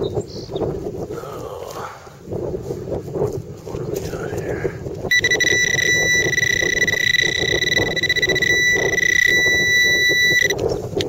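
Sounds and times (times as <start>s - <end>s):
metal detector alarm tone: 5.1s - 10.6s.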